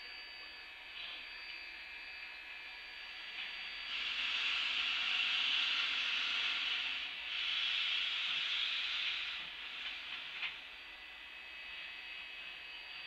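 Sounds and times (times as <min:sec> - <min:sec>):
steam hissing from locomotive: 0:03.2 - 0:10.8.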